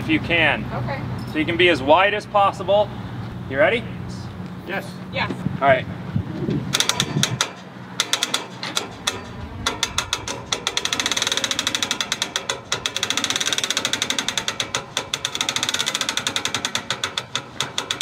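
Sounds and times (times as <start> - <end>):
winch ratchet clicking: 6.7 - 18.0.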